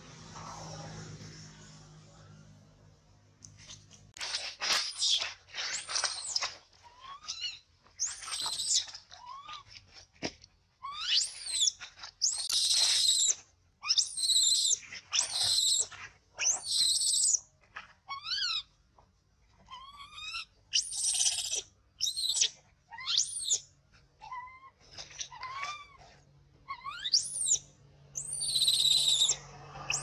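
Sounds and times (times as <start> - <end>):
baby monkey screaming: 4.3 - 9.7, 10.8 - 17.4, 18.1 - 18.7, 19.7 - 23.6, 24.2 - 26.0, 26.6 - 27.6, 28.2 - 30.0.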